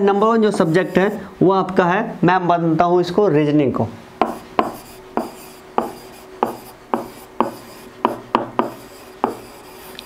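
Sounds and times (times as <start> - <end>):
pen scratching on surface: 4.2 - 10.0.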